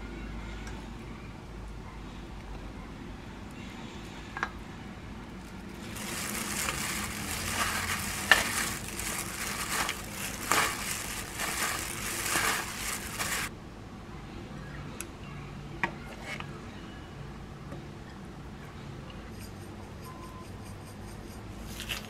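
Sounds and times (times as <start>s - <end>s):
onion tossed in steel bowl: 5.8s - 13.5s.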